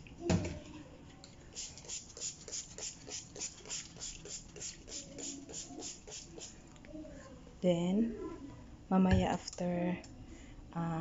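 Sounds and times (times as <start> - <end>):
spray bottle hissing mist: 1.6 - 6.6.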